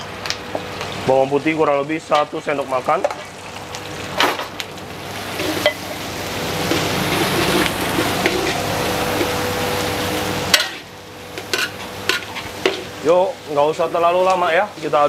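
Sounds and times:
onions sizzling in hot oil: 0:00.0 - 0:15.0
metal spatula scraping wok: 0:05.1 - 0:09.5, 0:10.2 - 0:13.0.

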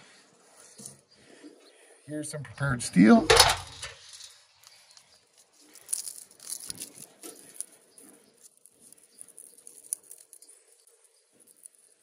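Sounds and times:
small metal parts clicking on steel: 0:03.3 - 0:04.8.

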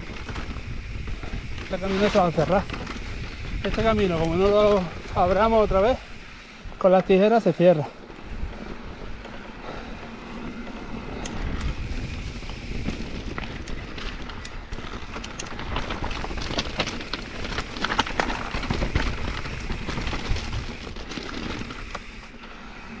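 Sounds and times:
wind rumble on microphone: 0:00.0 - 0:06.9, 0:08.0 - 0:22.0
bike rattling and clicking: 0:00.0 - 0:23.0
tyres crunching over stones: 0:11.6 - 0:22.4.

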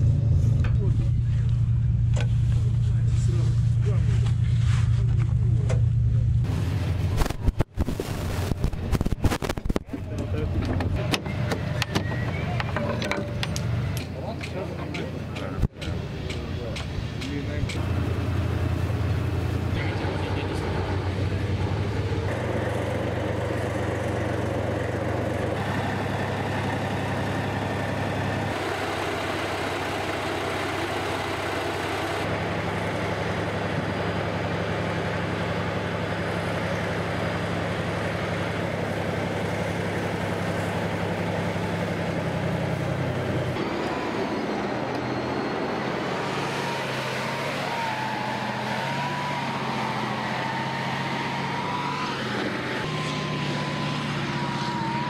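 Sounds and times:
diesel engine running: 0:00.0 - 0:55.0
wavering whine: 0:42.7 - 0:55.0.

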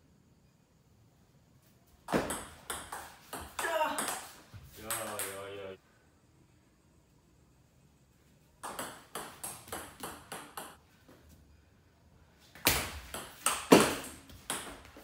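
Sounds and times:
table tennis rally: 0:02.0 - 0:05.8, 0:08.6 - 0:10.8, 0:12.5 - 0:15.0.

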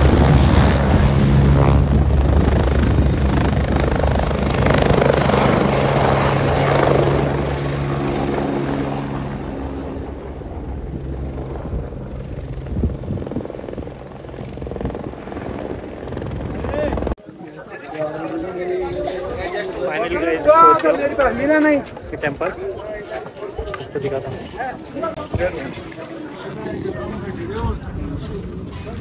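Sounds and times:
helicopter rotor beat: 0:00.0 - 0:17.2, 0:18.4 - 0:29.0.

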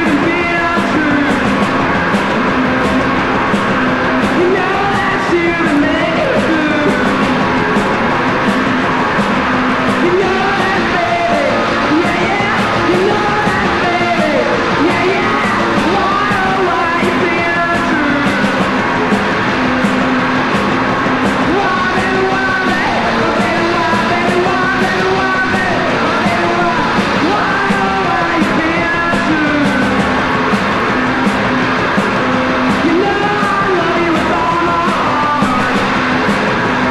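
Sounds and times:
person yelling singing: 0:00.0 - 0:01.5, 0:04.4 - 0:07.2, 0:10.0 - 0:18.6, 0:21.4 - 0:30.0, 0:32.8 - 0:36.0
punk rock band playing: 0:00.0 - 0:36.9.

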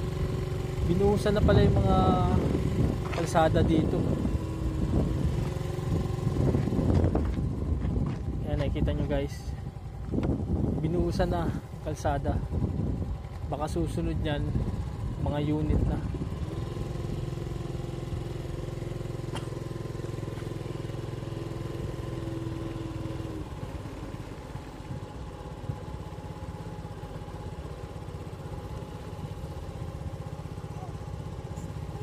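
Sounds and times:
small motorcycle engine running: 0:00.0 - 0:32.0.

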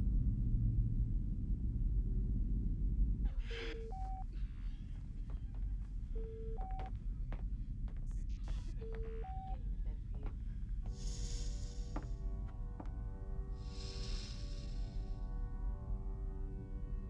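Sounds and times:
deep steady rumble: 0:00.0 - 0:17.0
low hum: 0:00.0 - 0:17.0
two-note medical monitor beep: 0:06.2 - 0:06.9.

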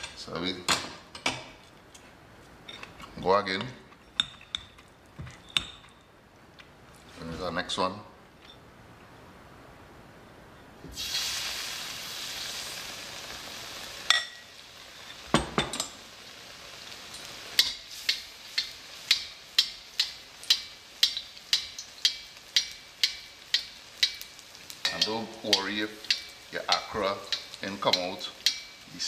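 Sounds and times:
batter sizzling in hot oil: 0:10.9 - 0:29.0.

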